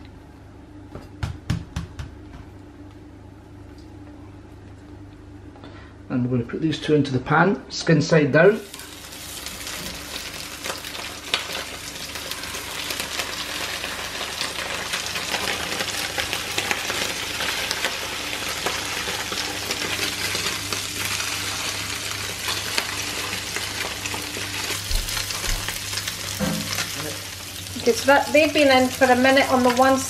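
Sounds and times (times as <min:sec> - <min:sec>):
fish sizzling in frying pan: 0:08.6 - 0:30.0.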